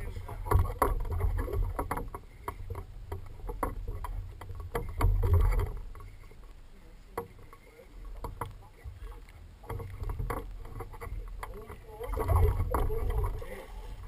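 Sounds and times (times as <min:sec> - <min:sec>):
low rumble on microphone: 0:00.0 - 0:14.0
fishing tackle clicks and knocks: 0:00.3 - 0:06.2, 0:07.2 - 0:08.6, 0:09.6 - 0:13.4.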